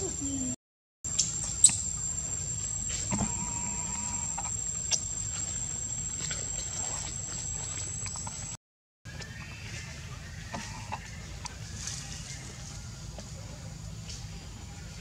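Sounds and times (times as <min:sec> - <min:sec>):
high-pitched insect drone: 0:01.2 - 0:07.8.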